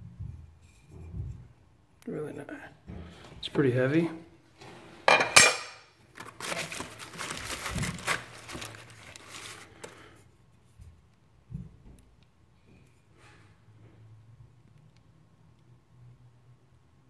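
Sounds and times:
bubble wrap crinkling: 6.0s - 10.1s.

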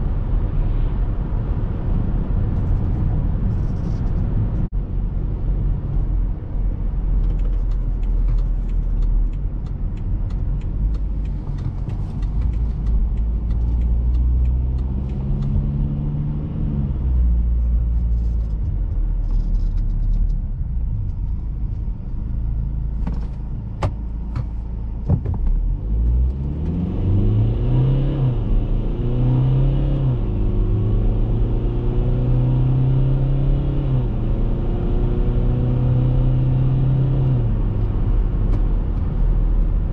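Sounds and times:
car engine accelerating: 0.0s - 39.9s
road rumble: 0.0s - 39.9s
sharp clicks: 7.2s - 15.6s.

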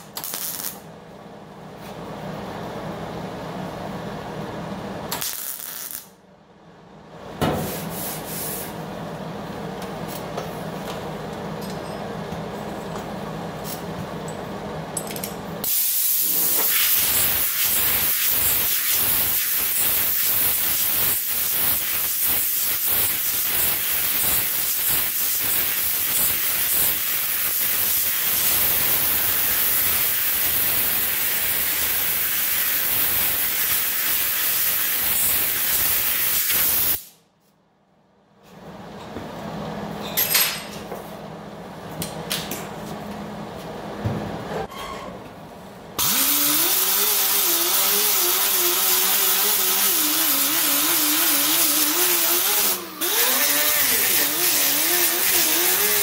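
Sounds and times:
air tool hissing and rasping: 46.0s - 56.0s.

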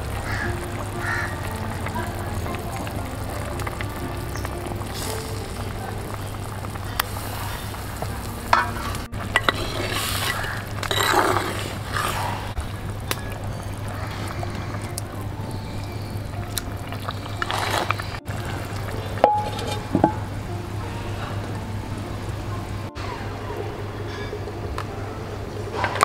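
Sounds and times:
curry bubbling in a pot: 0.0s - 22.9s
metal spoon scraping a pot: 8.6s - 12.4s, 19.2s - 20.2s.

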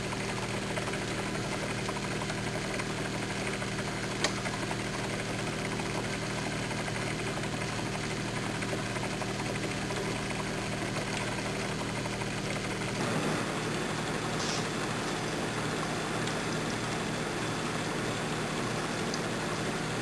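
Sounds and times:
torch flame hissing: 13.0s - 16.9s.

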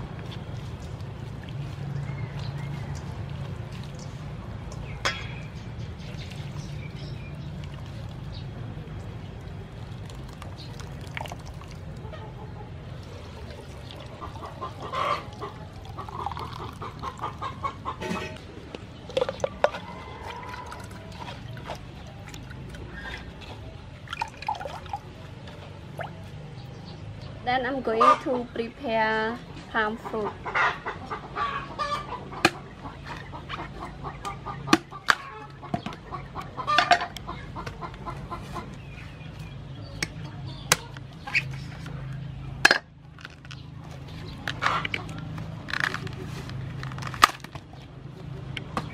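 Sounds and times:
liquid trickling through strainer: 0.1s - 12.1s, 12.9s - 17.4s, 19.0s - 26.2s
chickens clucking: 11.8s - 24.0s, 25.1s - 28.5s, 29.8s - 42.6s, 43.6s - 47.1s.

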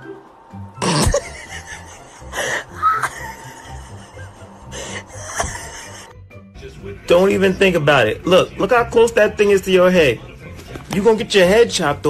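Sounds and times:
background music: 0.0s - 12.0s
person laughing: 0.8s - 6.2s.

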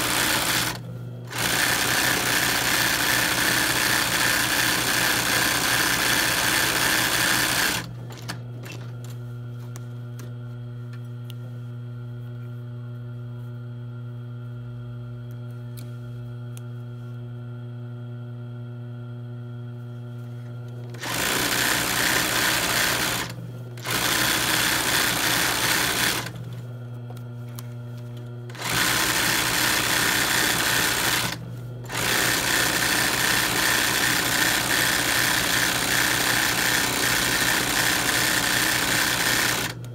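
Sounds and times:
sewing machine stitching: 0.0s - 8.3s, 20.9s - 26.4s, 28.5s - 39.8s.

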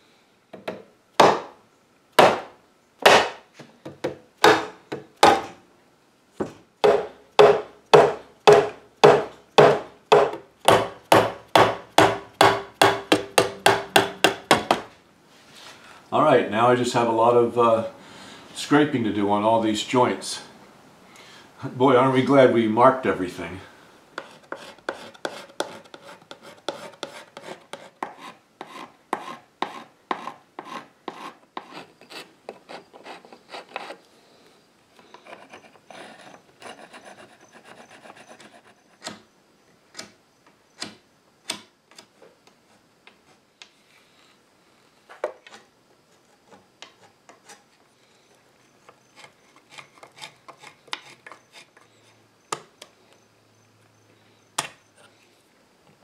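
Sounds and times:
scraper scraping glue off wood: 24.2s - 34.0s.

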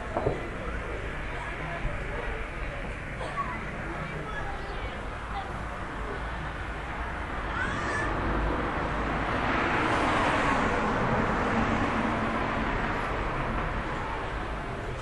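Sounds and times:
vehicle passing by: 7.6s - 14.5s.

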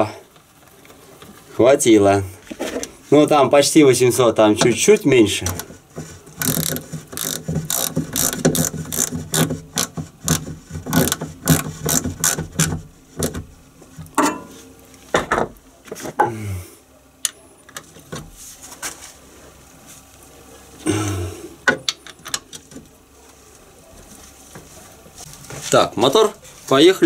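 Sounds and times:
ratchet wrench clicking: 6.4s - 12.4s.

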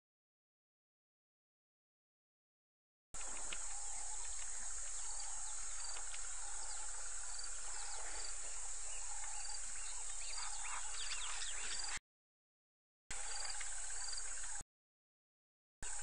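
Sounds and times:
insects chorus: 3.2s - 12.0s, 13.1s - 14.6s.

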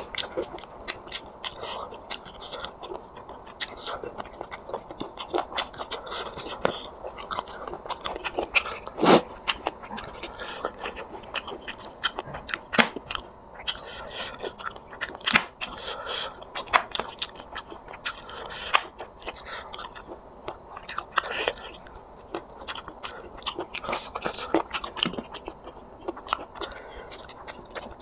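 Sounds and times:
food crunching: 0.0s - 28.0s
person chewing and biting: 0.0s - 28.0s.

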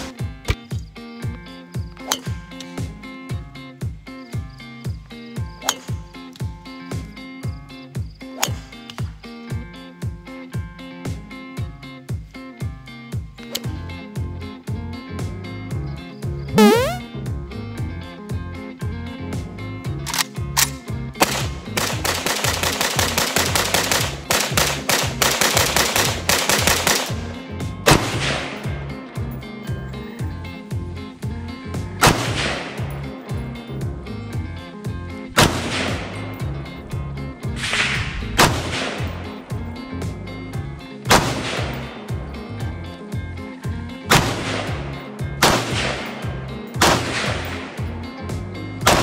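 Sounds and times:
background music with bass line: 9.6s - 49.0s
rifle firing rapid shots: 21.2s - 27.2s, 44.1s - 44.8s, 45.4s - 47.7s
single gunshot with long echo: 45.4s - 46.1s.

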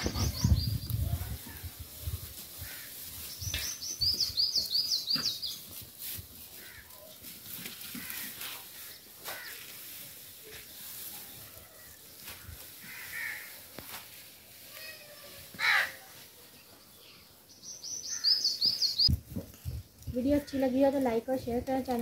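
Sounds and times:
birds calling: 0.0s - 1.1s, 2.6s - 5.9s, 6.5s - 10.0s, 15.5s - 19.2s
faint outdoor background noise: 0.0s - 22.0s.

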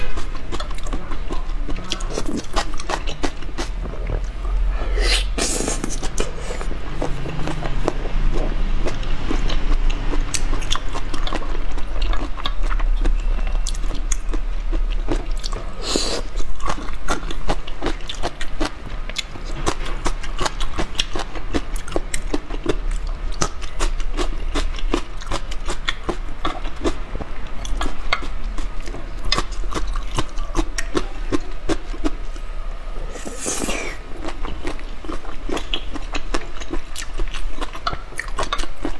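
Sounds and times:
chewing crunchy food: 0.0s - 32.5s, 33.1s - 38.9s
wet mouth sounds: 0.1s - 19.3s, 33.1s - 34.8s
slurping: 1.8s - 8.5s, 15.4s - 16.4s, 33.1s - 34.1s.

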